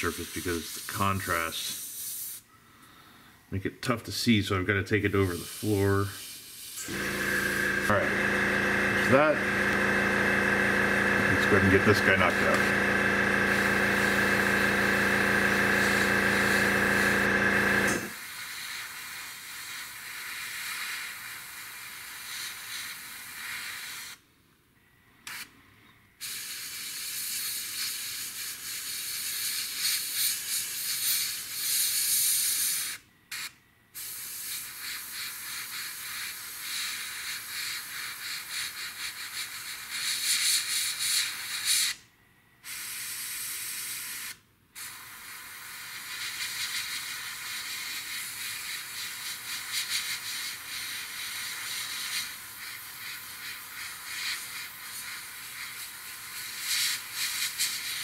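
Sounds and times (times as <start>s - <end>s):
airbrush spraying hiss: 0.0s - 2.5s, 5.2s - 24.2s, 26.2s - 42.0s, 42.6s - 58.0s
air compressor humming: 6.7s - 18.2s.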